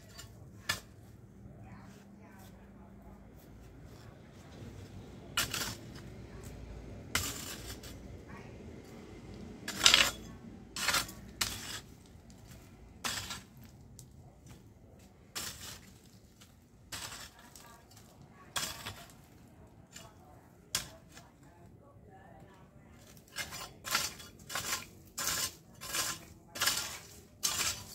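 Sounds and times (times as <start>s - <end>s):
digging tool striking stony soil: 5.4s - 6.1s, 7.2s - 8.0s, 9.6s - 14.6s, 15.3s - 19.2s, 20.8s - 21.2s, 23.0s - 27.9s.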